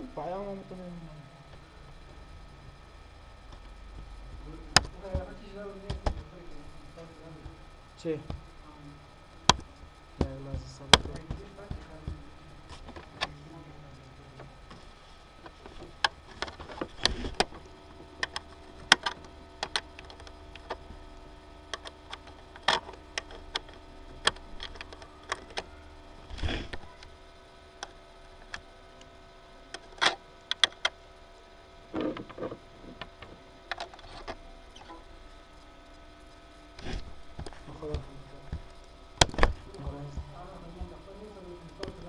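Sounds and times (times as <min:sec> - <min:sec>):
faint steady hum: 0:00.0 - 0:42.0
sharp clicks and knocks: 0:03.5 - 0:06.3, 0:09.5 - 0:13.4, 0:21.7 - 0:25.7, 0:29.7 - 0:31.0, 0:36.8 - 0:41.1.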